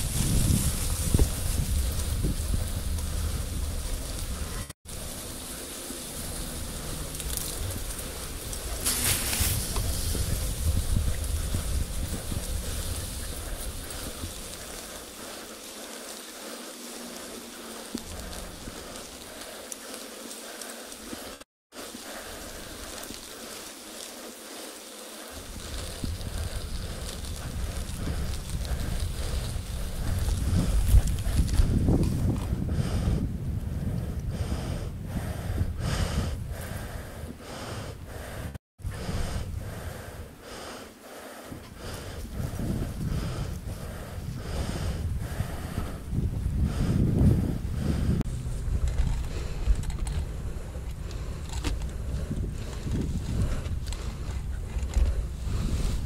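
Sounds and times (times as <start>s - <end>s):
wind rumbling on microphone: 0.0s - 24.0s, 25.3s - 40.8s, 41.4s - 56.0s
bicycle tyres hissing through grass: 0.0s - 56.0s
small ticks: 5.3s - 32.5s
heavy rhythmic panting: 9.8s - 31.8s, 32.5s - 55.8s.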